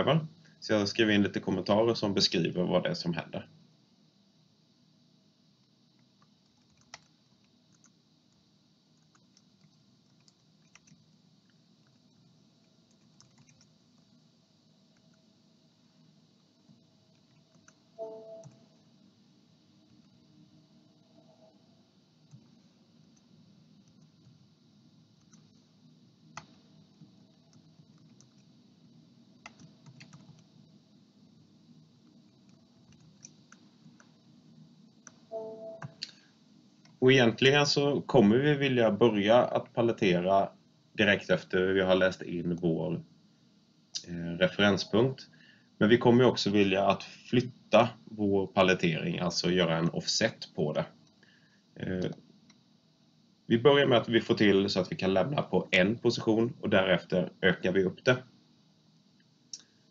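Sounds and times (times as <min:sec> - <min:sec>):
low steady hum: 0:00.0 - 0:59.9
faint typing on keyboard: 0:05.6 - 0:14.2, 0:14.8 - 0:15.3, 0:16.4 - 0:18.9, 0:19.8 - 0:20.2, 0:22.2 - 0:24.5, 0:25.1 - 0:25.7, 0:26.3 - 0:28.6, 0:29.4 - 0:30.7, 0:32.0 - 0:34.3, 0:34.9 - 0:37.0, 0:42.1 - 0:42.8
computer keyboard typing: 0:06.2 - 0:08.4, 0:09.0 - 0:11.1, 0:12.8 - 0:14.1, 0:17.1 - 0:18.6, 0:27.3 - 0:28.5, 0:29.4 - 0:30.4, 0:32.3 - 0:34.1.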